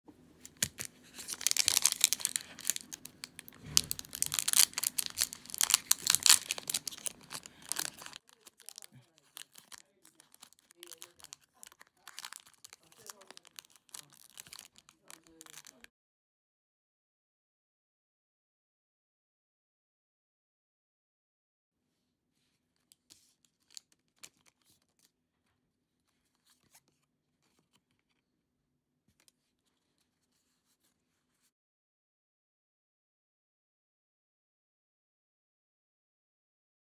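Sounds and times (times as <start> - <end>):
foil wrapper crinkling and tearing: 0.4 - 15.9
trading cards rustling and clicking: 0.4 - 15.9.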